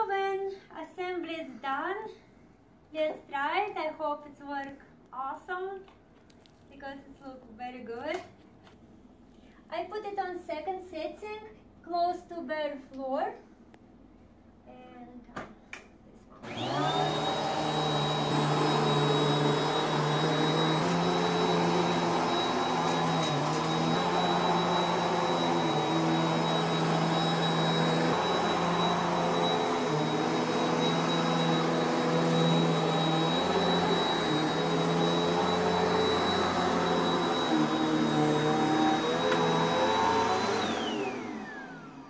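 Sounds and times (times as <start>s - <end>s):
vacuum cleaner droning: 16.4s - 42.0s.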